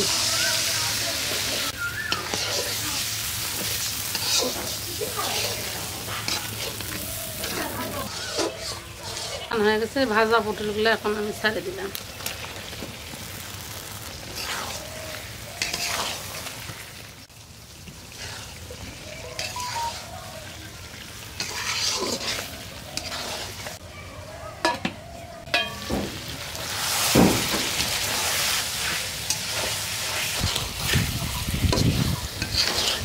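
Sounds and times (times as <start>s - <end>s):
gravy sizzling in a pan: 0.0s - 23.9s, 25.4s - 33.0s
spatula scraping a pan: 1.4s - 10.7s, 14.2s - 16.5s, 18.1s - 18.6s, 19.3s - 20.3s, 21.2s - 23.8s, 26.7s - 33.0s.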